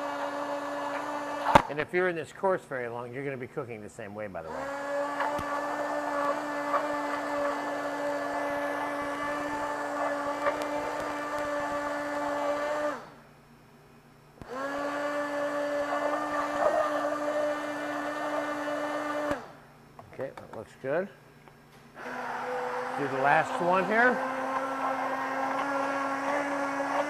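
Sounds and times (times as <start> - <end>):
immersion blender whine: 0.0 - 1.9, 4.4 - 13.2, 14.4 - 19.6, 22.0 - 27.0.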